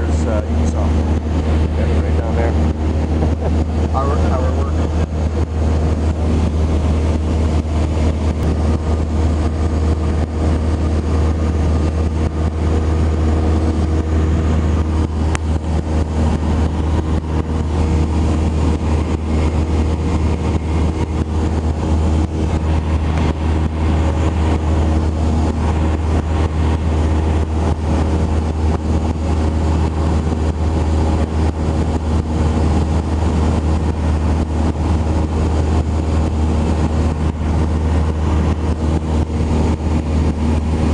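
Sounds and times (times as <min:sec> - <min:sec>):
airplane engine droning: 0:00.0 - 0:40.9.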